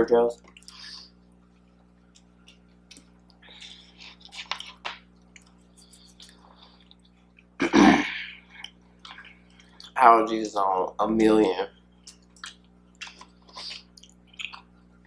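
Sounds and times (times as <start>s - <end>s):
chewing and crunching cookies: 0.3s - 7.6s, 8.3s - 10.0s, 11.7s - 15.0s
loud sneeze: 7.6s - 8.2s.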